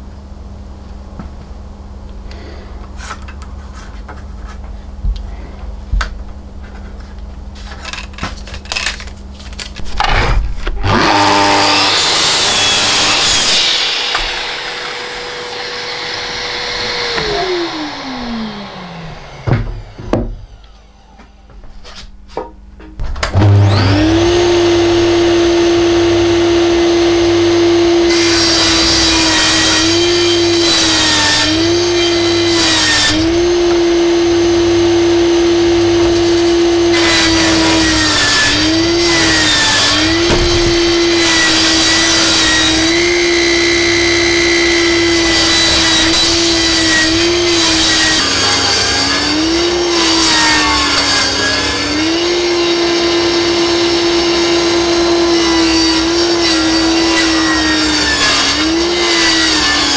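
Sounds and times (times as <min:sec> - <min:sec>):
electric power tool motor: 0:10.8 - 0:20.9, 0:23.3 - 0:59.8
scattered knocks: 0:40.0 - 0:41.3.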